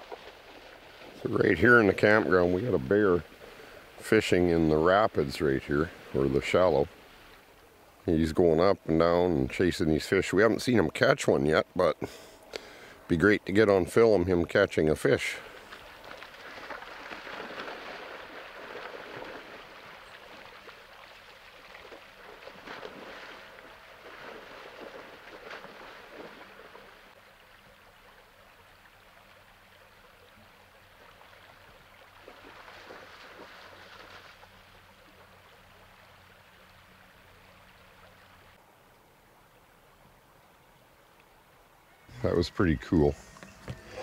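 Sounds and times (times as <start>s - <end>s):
water splashing: 0.0s - 8.4s, 15.0s - 38.6s
creek rapids running: 0.0s - 39.4s, 41.0s - 44.0s.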